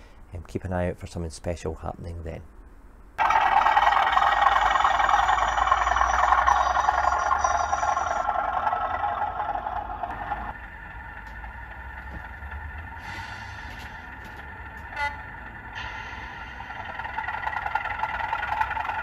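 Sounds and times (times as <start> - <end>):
model locomotive engine sound: 3.2 - 19.0.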